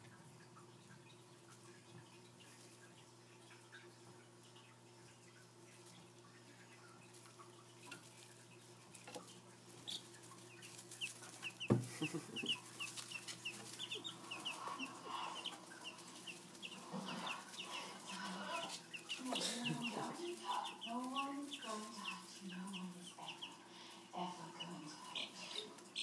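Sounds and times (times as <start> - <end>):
chicks peeping: 0.0 - 26.0
faint low hum: 0.0 - 26.0
thump: 11.7 - 11.9.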